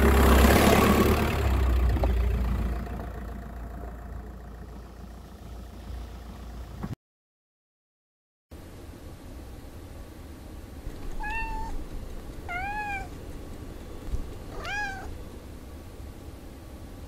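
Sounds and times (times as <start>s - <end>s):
steady low hum: 8.6s - 17.0s
cat meowing: 11.1s - 11.8s, 12.4s - 13.2s, 14.5s - 15.2s.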